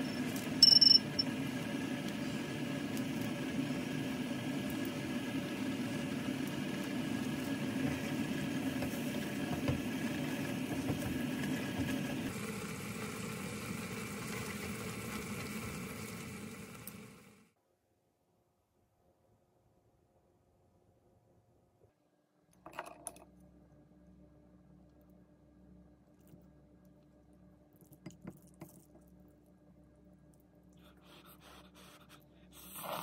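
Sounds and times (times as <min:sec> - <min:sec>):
noodles simmering and bubbling: 0:00.1 - 0:17.4.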